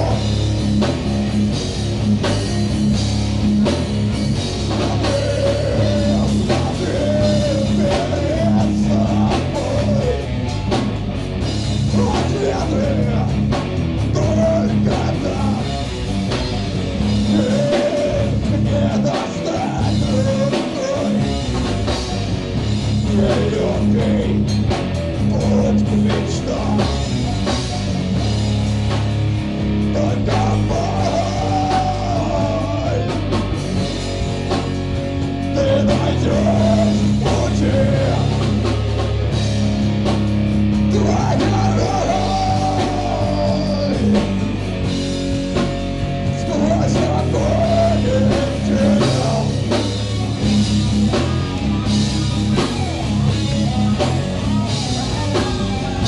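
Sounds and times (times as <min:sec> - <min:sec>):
drum kit: 0:00.0 - 0:56.0
electric guitars: 0:00.0 - 0:56.0
person singing into a microphone: 0:04.8 - 0:10.4, 0:11.9 - 0:13.4, 0:14.1 - 0:15.8, 0:17.2 - 0:21.4, 0:23.0 - 0:24.5, 0:25.3 - 0:27.1, 0:29.9 - 0:33.4, 0:35.5 - 0:38.6, 0:40.9 - 0:44.4, 0:46.4 - 0:50.2.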